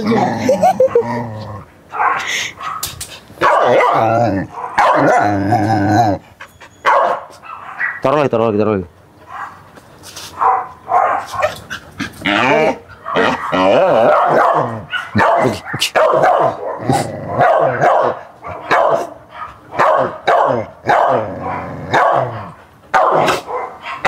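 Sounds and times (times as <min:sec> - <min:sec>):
dog barking aggressively: 0:01.9 - 0:05.7, 0:06.8 - 0:08.1, 0:09.3 - 0:09.6, 0:10.3 - 0:24.0.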